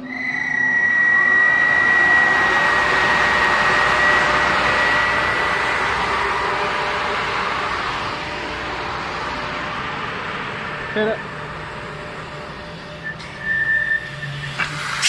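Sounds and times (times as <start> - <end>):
pneumatic drill high whine: 0.0 - 15.0
rushing air hiss: 14.2 - 15.0.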